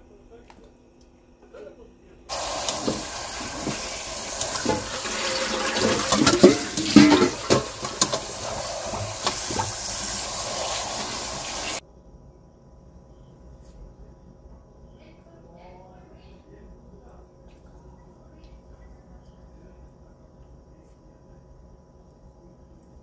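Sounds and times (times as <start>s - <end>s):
tap water splashing into colander: 2.3s - 11.8s.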